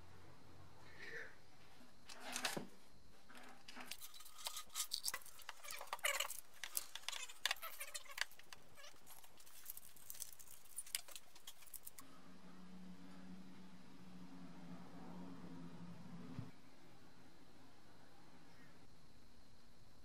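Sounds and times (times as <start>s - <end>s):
masking tape crinkling rustle: 3.9s - 12.0s.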